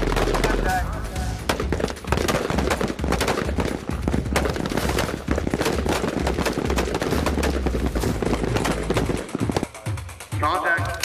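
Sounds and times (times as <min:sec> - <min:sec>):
rifle shots overlapping: 0:01.4 - 0:09.9.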